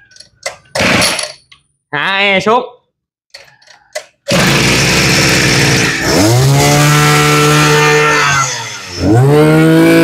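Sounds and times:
brush cutter engine revving: 4.3s - 10.0s.

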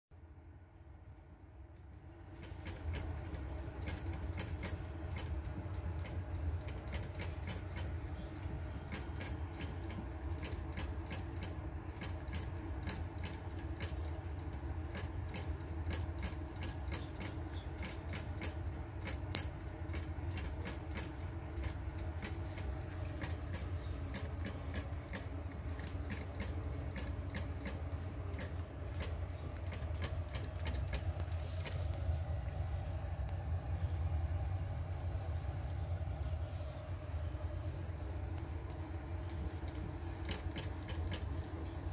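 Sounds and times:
steady low hum: 0.1s - 41.9s.

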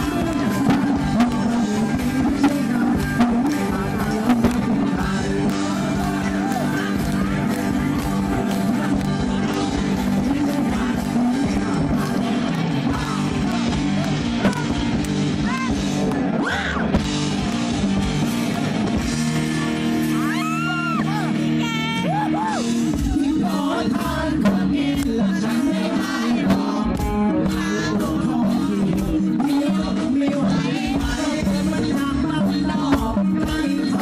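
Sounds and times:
man singing into microphone: 0.0s - 14.8s, 22.8s - 34.0s
live rock band playing: 0.0s - 34.0s.

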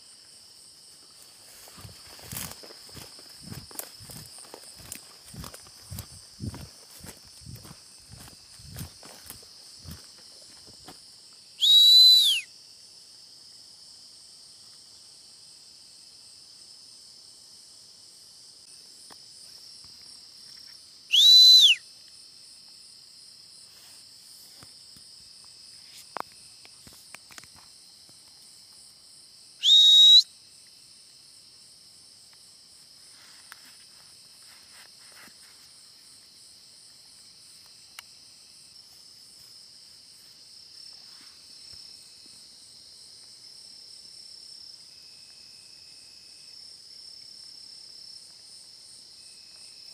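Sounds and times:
night insects chorus: 0.0s - 49.9s
loud sharp whistles: 11.6s - 12.5s, 21.1s - 21.9s, 29.6s - 30.3s.

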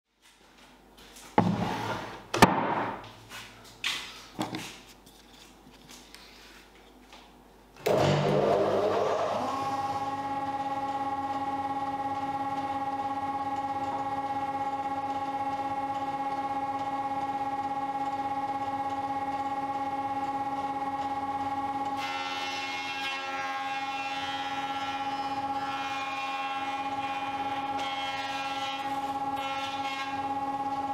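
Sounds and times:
planer cutting board: 1.4s - 3.0s, 7.8s - 11.0s, 21.9s - 30.9s
jointer motor humming: 7.8s - 30.9s.

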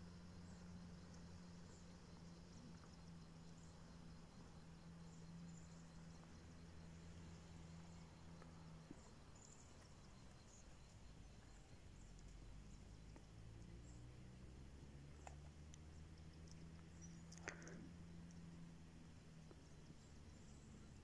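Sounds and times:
faint high chirps: 0.0s - 14.4s
faint low hum: 0.0s - 21.0s.

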